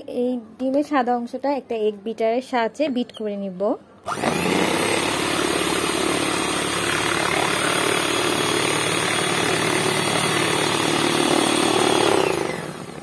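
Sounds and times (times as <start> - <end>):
electric hand mixer whisking: 4.1 - 13.0.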